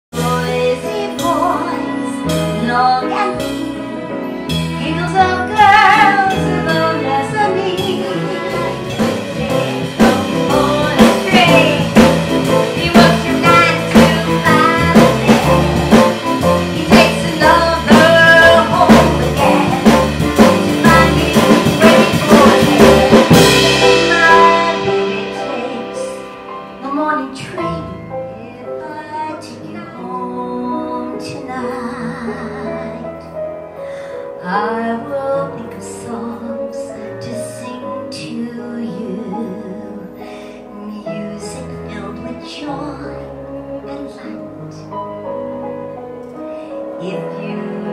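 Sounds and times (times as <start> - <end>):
small band playing: 0.1 - 47.9
woman singing into a microphone: 0.2 - 4.0, 4.7 - 16.0, 16.6 - 44.9, 46.9 - 47.9.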